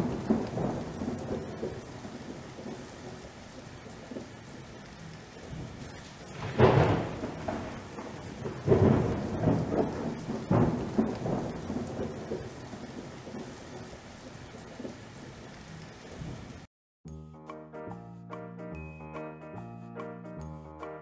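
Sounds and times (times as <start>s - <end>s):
thunder rolling: 0.0s - 15.5s
steady rain: 0.0s - 16.7s.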